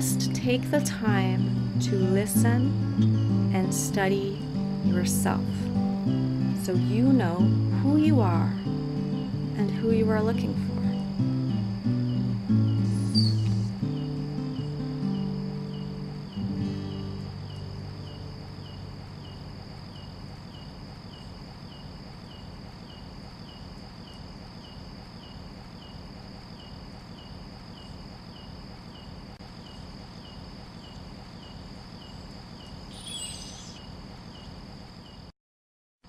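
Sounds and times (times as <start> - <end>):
background music: 0.0 - 18.0
insects trilling and chirping: 0.0 - 35.3
brief higher insect call: 10.5 - 35.3.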